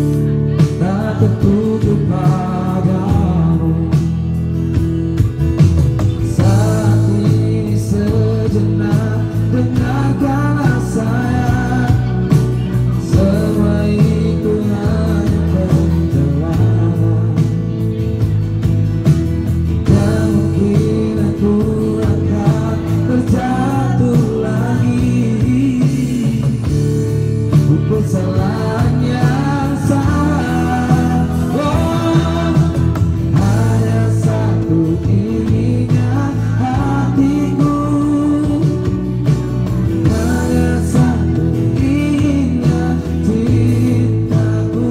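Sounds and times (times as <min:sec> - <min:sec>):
person singing: 0:00.0 - 0:04.4, 0:06.2 - 0:18.2, 0:19.8 - 0:44.9
live band playing: 0:00.0 - 0:44.9.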